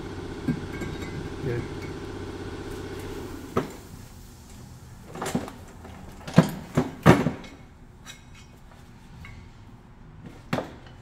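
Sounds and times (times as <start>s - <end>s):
metallic knocks and clanks: 0.5s - 2.0s.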